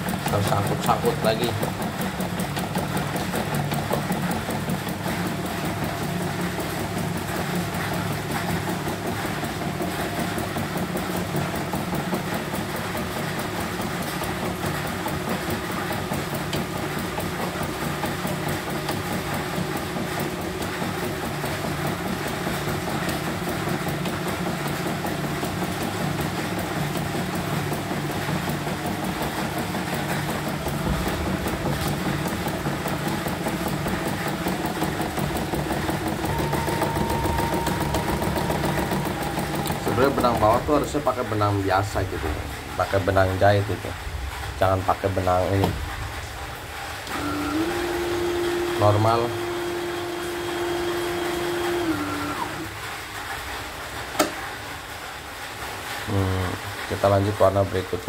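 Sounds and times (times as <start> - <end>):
embroidery machine stitching: 0.0 - 43.8, 47.0 - 52.8.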